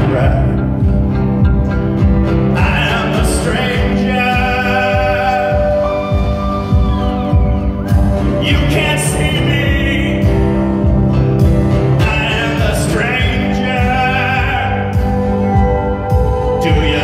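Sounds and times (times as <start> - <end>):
man singing into microphone: 0.0 - 0.7, 2.5 - 7.4, 8.3 - 10.7, 11.9 - 15.1, 16.5 - 17.0
acoustic guitar and band: 0.0 - 17.0.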